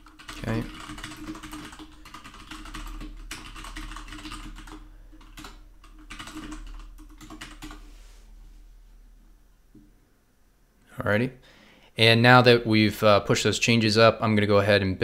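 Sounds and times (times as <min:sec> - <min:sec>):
keyboard typing: 0:00.0 - 0:07.8.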